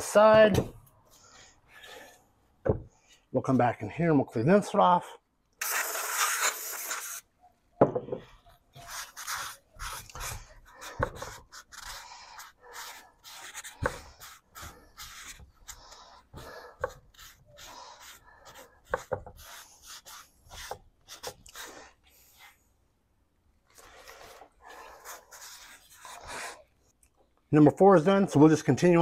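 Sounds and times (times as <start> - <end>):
aerosol spray hiss: 5.6 - 7.2.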